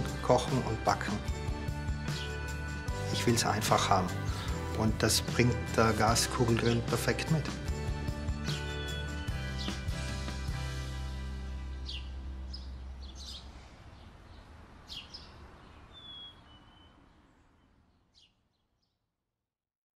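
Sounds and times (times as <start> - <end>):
low background music: 0.0 - 14.0
birds chirping: 0.0 - 19.0
soft outdoor background hiss: 0.0 - 19.2.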